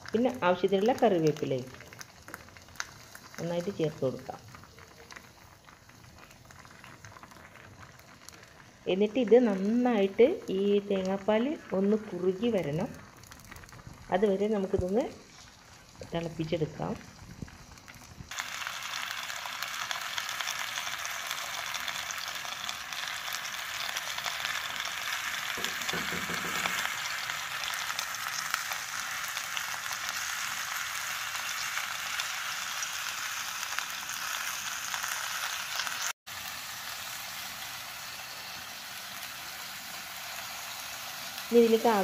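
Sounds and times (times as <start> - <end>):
coconut milk sizzling and bubbling: 0.0 - 42.0.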